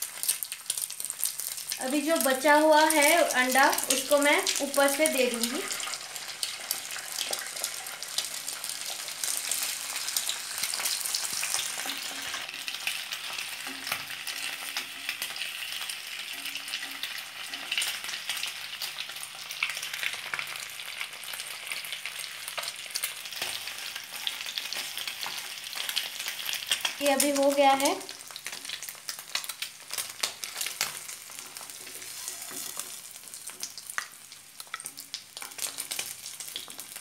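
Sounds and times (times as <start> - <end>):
eggs sizzling in hot oil: 0.0 - 37.0
wooden spatula pushing food: 30.4 - 33.5.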